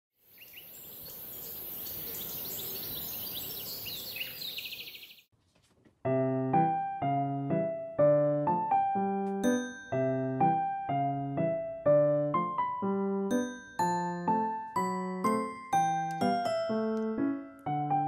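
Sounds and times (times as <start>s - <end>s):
birds chirping: 0.2s - 5.3s
piano music: 6.0s - 18.0s.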